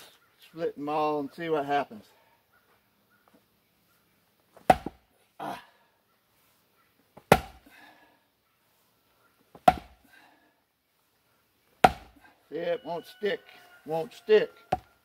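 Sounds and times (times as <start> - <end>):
splitting maul striking wood: 4.6 - 5.0, 7.3 - 7.6, 9.6 - 10.0, 11.8 - 12.2.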